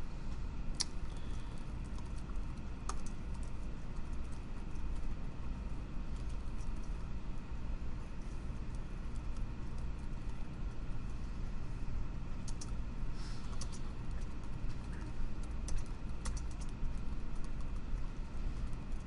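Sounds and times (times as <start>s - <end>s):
keyboard typing: 0.8s - 5.1s, 12.4s - 12.8s, 13.4s - 19.0s.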